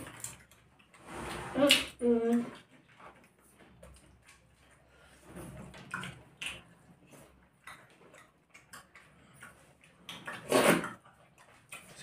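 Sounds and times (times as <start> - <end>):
mouth clicks and lip smacks: 5.7 - 12.0.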